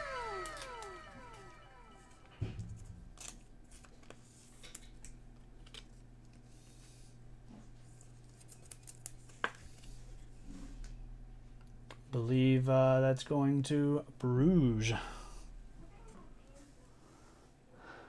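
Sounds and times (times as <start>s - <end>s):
low hum: 0.0s - 4.2s.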